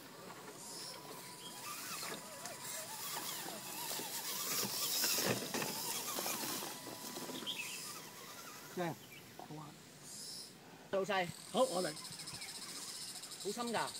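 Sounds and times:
small electric motor whirring: 0:00.0 - 0:13.9.

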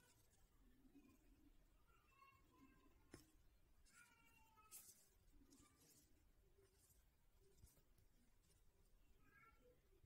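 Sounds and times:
soft rustles of yarn: 0:00.0 - 0:10.0.

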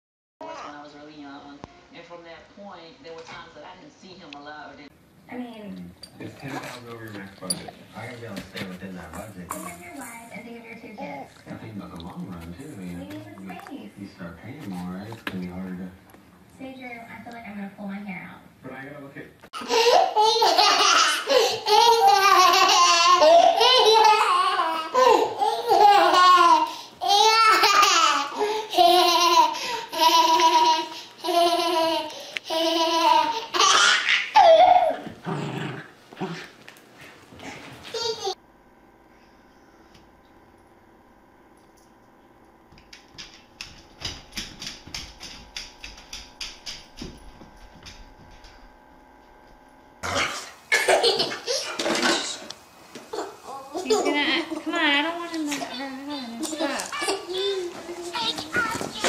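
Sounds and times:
toddler laughing: 0:19.6 - 0:35.2, 0:37.9 - 0:38.4, 0:56.6 - 0:59.0
dog claws clicking on hardwood floor: 0:42.7 - 0:48.6.

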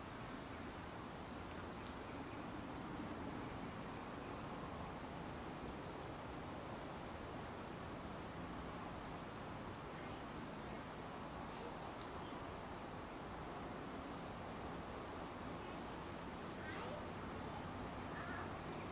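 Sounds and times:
steady background hiss: 0:00.0 - 0:18.9
insect chirping in double chirps: 0:04.7 - 0:09.6, 0:15.7 - 0:18.2.

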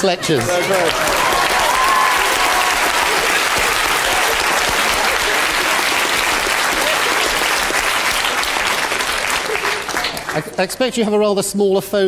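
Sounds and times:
children clapping: 0:00.3 - 0:10.6.

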